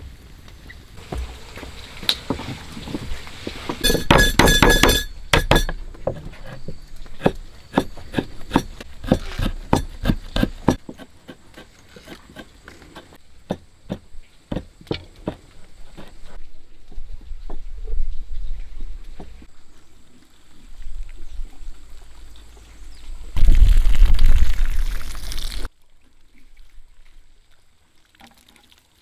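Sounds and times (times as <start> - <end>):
metallic clatter with ringing: 3.8 - 5.8
tool knocking on wood: 3.8 - 6.2, 7.2 - 11.1.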